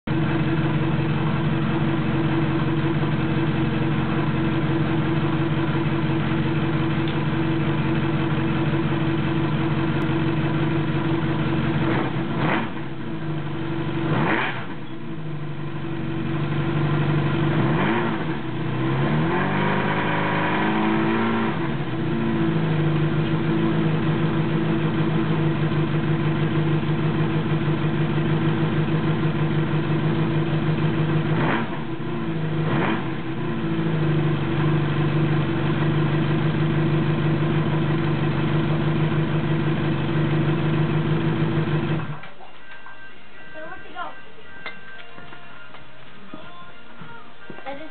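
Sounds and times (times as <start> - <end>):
motorcycle engine idling: 0.0 - 14.1, 14.7 - 17.6, 21.7 - 42.6
motorcycle engine revving: 0.2 - 42.3.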